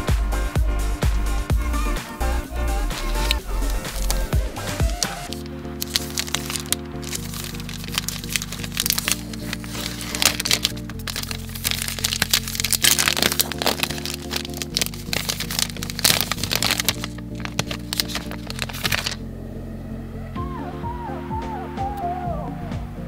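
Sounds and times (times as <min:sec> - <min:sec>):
background music: 0:00.0 - 0:23.0
wrapper crinkling and tearing: 0:03.0 - 0:19.2.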